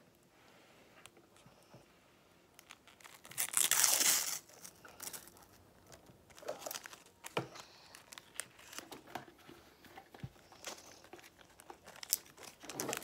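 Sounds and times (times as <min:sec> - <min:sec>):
wrapper ripping: 0:02.6 - 0:08.9, 0:10.6 - 0:13.0
wrapper crinkling: 0:02.6 - 0:09.1, 0:10.4 - 0:13.0.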